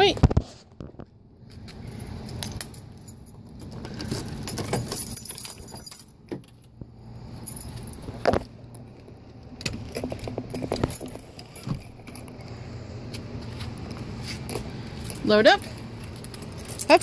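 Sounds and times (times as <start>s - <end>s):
light metal jingling: 1.8s - 8.8s, 9.8s - 12.8s, 13.4s - 17.0s.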